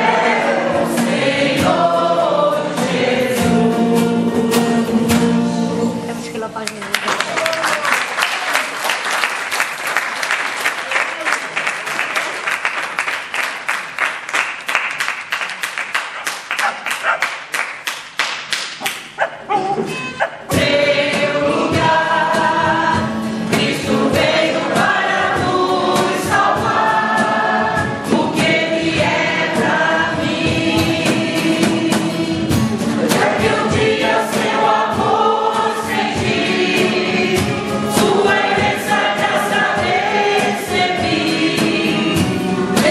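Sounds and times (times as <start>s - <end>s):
choir singing: 0.0s - 6.1s, 20.3s - 42.9s
people clapping: 6.6s - 19.2s.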